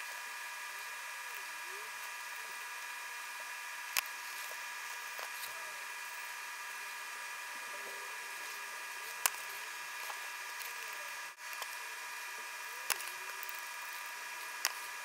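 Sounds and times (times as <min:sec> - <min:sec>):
high electrical whine: 0:00.0 - 0:15.0.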